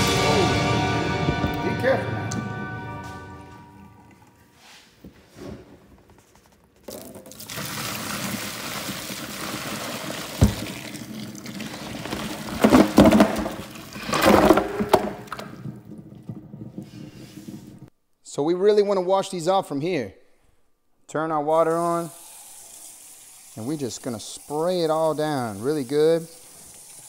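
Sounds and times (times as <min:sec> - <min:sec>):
water pouring into a steel sink: 0:07.2 - 0:15.6, 0:21.7 - 0:27.0
knock: 0:10.4 - 0:10.7.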